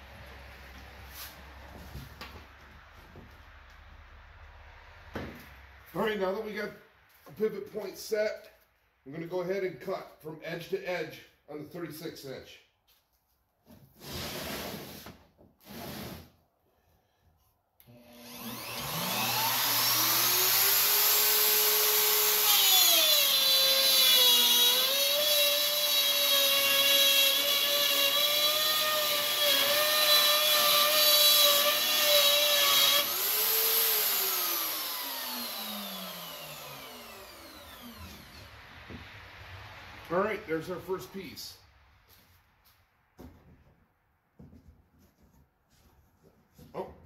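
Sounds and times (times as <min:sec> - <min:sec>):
router motor whining: 0:17.9 - 0:38.5
router cutting plywood: 0:18.0 - 0:38.5.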